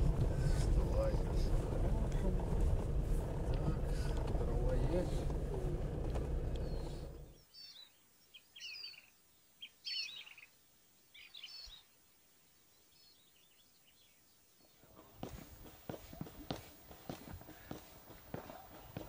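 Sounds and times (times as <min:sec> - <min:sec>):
vehicle running noise: 0:00.0 - 0:07.3
songbirds chirping: 0:00.0 - 0:19.0.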